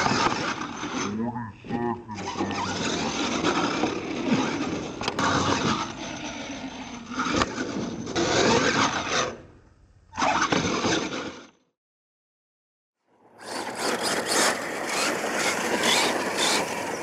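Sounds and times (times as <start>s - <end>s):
toy truck drivetrain din: 0.0s - 9.4s, 13.2s - 17.0s.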